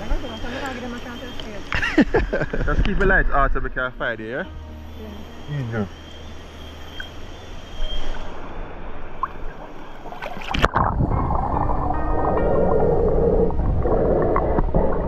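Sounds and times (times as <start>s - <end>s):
underwater rumble with bubbling: 6.3s - 15.0s
water lapping and splashing: 9.0s - 12.5s.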